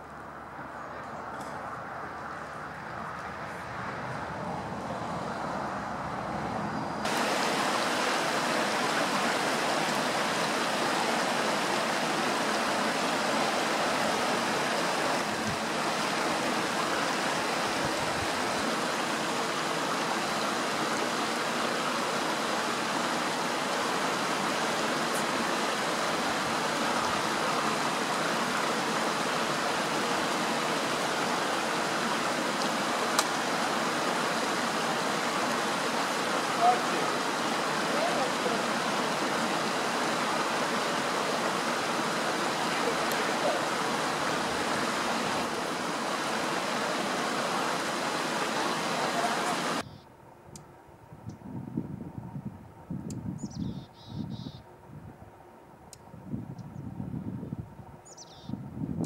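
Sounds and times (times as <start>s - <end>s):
falling water rushing: 7.0s - 49.8s.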